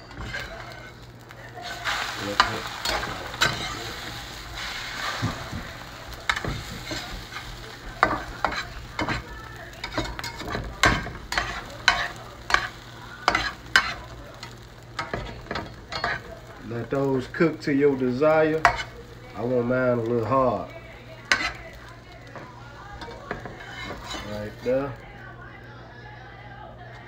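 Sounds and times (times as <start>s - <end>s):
metal spatula scraping and tapping pan: 0.0s - 1.0s, 1.6s - 16.4s, 18.0s - 19.5s, 21.2s - 24.9s
eggs sizzling in a frying pan: 0.0s - 27.0s.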